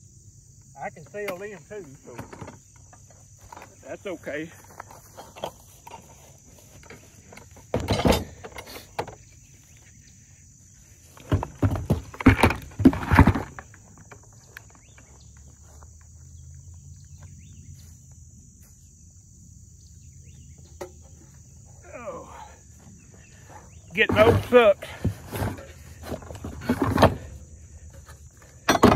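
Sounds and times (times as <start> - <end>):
high insect drone: 0.0 - 28.9
rustling in dry grass: 4.5 - 7.7.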